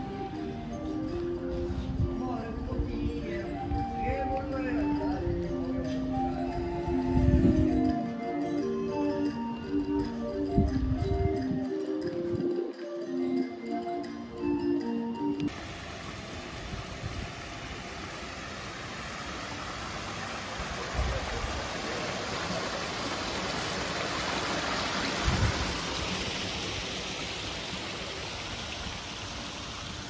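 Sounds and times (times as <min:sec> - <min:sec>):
water rushing and splashing: 0:15.5 - 0:30.0.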